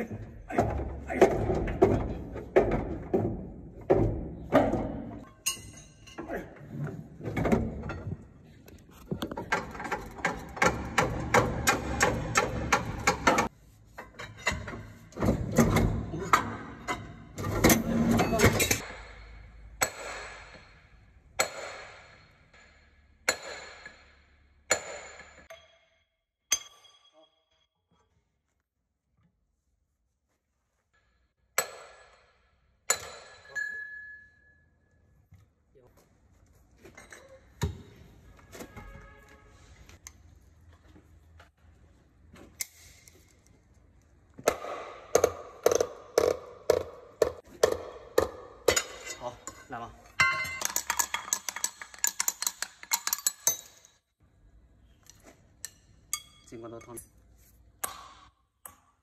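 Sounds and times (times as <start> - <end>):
metal clanks: 0.0 - 8.4, 9.1 - 20.8
strikes on steel parts ringing: 5.2 - 6.4, 18.2 - 27.6, 48.2 - 54.0.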